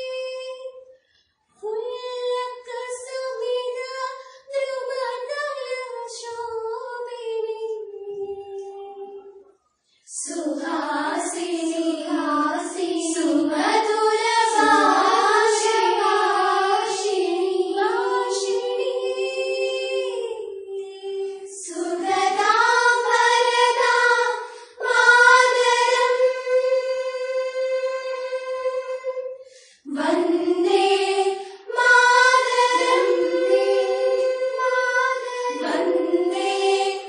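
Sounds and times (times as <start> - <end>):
girls singing together: 0.0 - 0.8, 1.6 - 9.5, 10.1 - 37.0.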